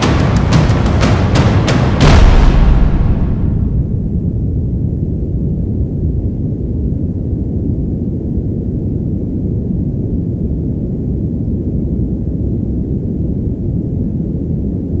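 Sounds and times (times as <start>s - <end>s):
deep low rumble: 0.0s - 10.4s.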